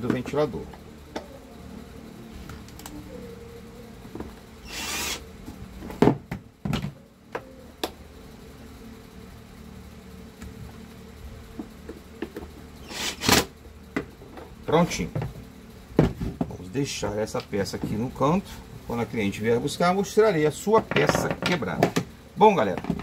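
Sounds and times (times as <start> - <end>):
cordless drill running: 4.6 - 5.2, 12.8 - 13.4.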